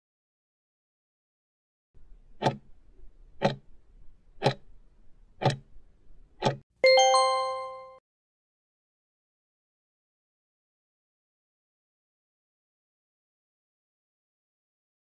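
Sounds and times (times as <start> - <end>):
clock ticks: 2.4 - 2.7, 3.4 - 3.6, 4.4 - 4.6, 5.4 - 5.7, 6.4 - 6.6
ringing chime: 6.8 - 8.0.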